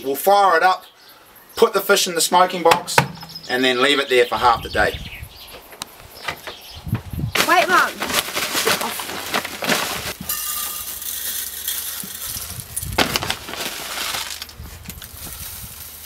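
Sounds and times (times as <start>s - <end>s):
plastic bag crinkling: 7.4s - 16.0s
sawdust rustling: 7.4s - 16.0s
sharp metal clinks: 10.3s - 12.1s.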